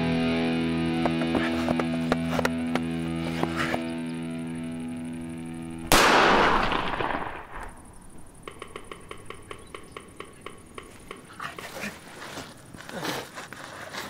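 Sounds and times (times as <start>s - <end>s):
pistol shot with echo: 5.8s - 8.0s.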